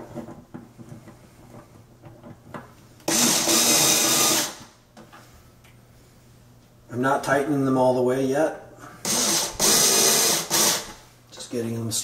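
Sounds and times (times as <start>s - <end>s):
cordless screwdriver driving screw: 9.1s - 10.9s.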